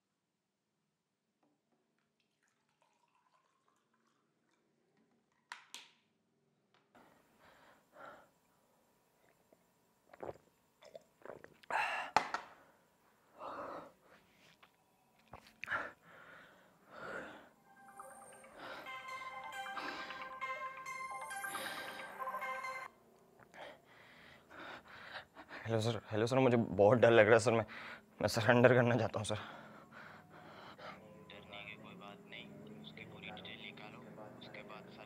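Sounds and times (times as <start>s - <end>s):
man swallowing water: 9.2s - 11.8s
man breathing hard: 11.7s - 14.4s, 15.6s - 17.6s, 23.5s - 25.7s, 27.7s - 28.1s, 29.4s - 31.0s.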